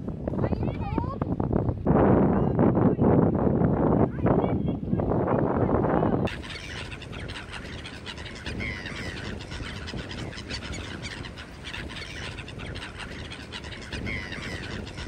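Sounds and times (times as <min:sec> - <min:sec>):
gulls calling: 0:06.3 - 0:15.0.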